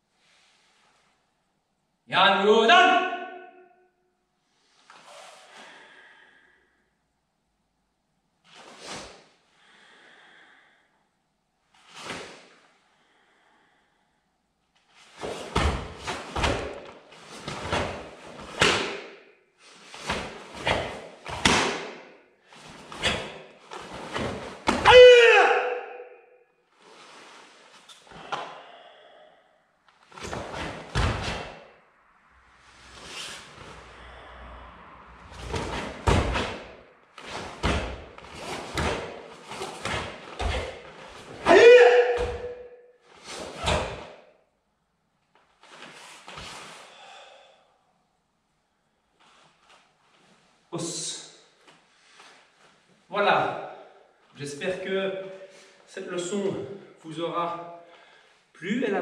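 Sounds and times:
uniform snapping swishes: 0:15.1 - 0:24.8, 0:35.3 - 0:41.4
feet striking floor: 0:20.0 - 0:22.0, 0:35.4 - 0:42.6.

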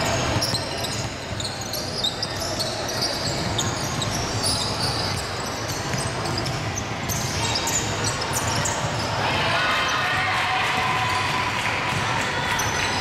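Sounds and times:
basketball bouncing: 0:05.0 - 0:07.4.

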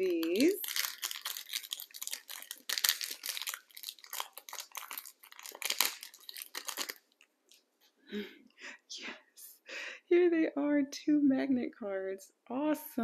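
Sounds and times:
crinkly packaging tearing: 0:00.0 - 0:07.3.

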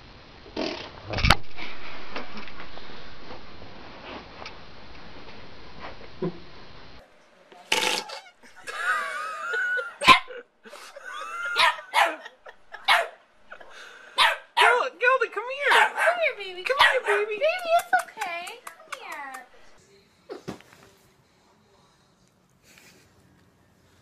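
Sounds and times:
small dog barking and yipping: 0:11.5 - 0:13.2, 0:14.2 - 0:14.8, 0:15.6 - 0:17.4.

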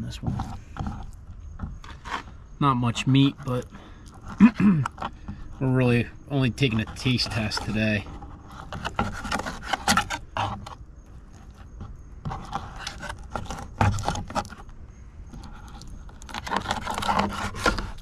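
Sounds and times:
knife scraping a cutting board: 0:06.6 - 0:14.6, 0:15.4 - 0:18.0.

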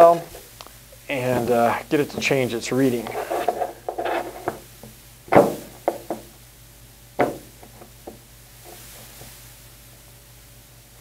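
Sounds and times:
dumbbell knocking on desk: 0:05.3 - 0:06.3, 0:07.2 - 0:07.5.

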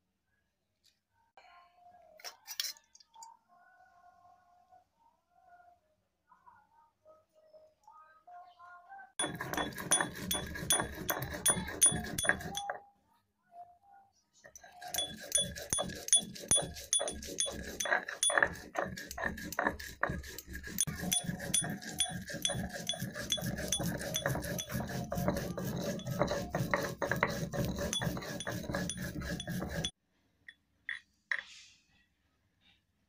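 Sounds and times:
stone roller grinding on stone: 0:09.2 - 0:12.8, 0:14.6 - 0:30.0.

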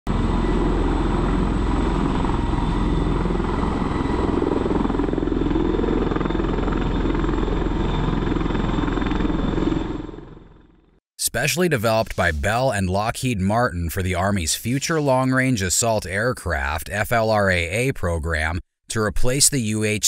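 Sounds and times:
rotor blades beating: 0:00.1 - 0:10.8.

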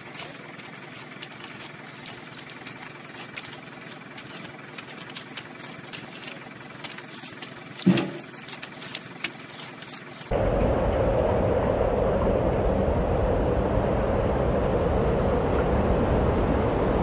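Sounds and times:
vehicle engine running: 0:00.0 - 0:17.0
pineapples landing in bin: 0:07.8 - 0:08.4.

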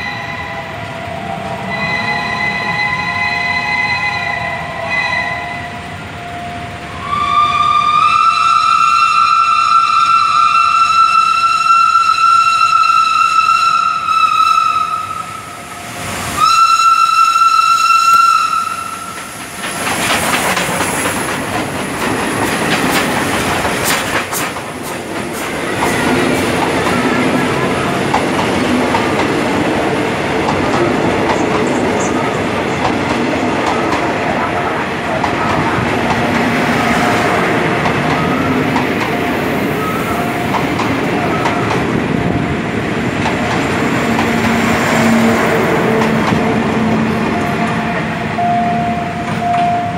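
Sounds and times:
steam locomotive whistle: 0:00.0 - 0:19.3, 0:44.0 - 0:49.9
train wheels clattering over rails: 0:18.0 - 0:48.4.

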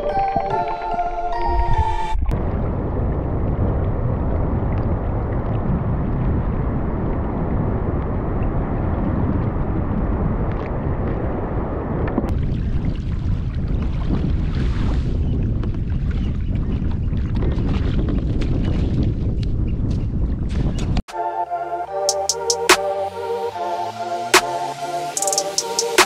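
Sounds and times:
wind buffeting microphone: 0:01.5 - 0:21.0
small waves at shoreline: 0:12.4 - 0:15.2.

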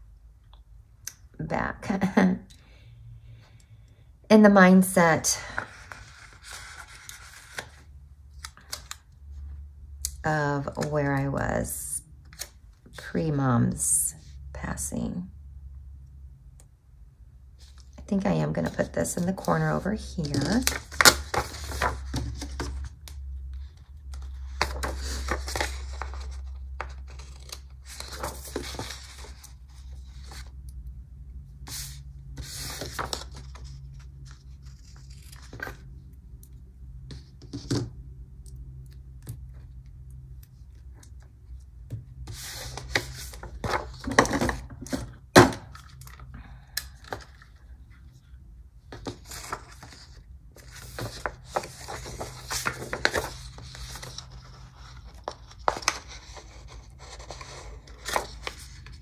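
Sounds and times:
paper and stickers rustling: 0:05.4 - 0:07.8, 0:17.6 - 0:23.0, 0:23.6 - 0:30.5, 0:31.7 - 0:35.8, 0:42.3 - 0:47.7, 0:48.9 - 0:59.0.

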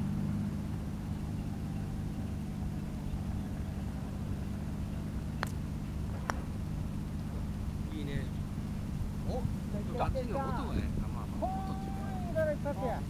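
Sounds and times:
low background rumble: 0:00.0 - 0:13.0
putter striking golf ball: 0:04.9 - 0:07.7.

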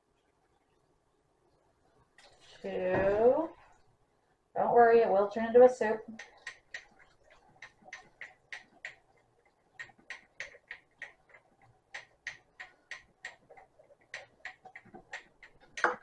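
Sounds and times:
whisk clicking against pot: 0:06.1 - 0:16.0.

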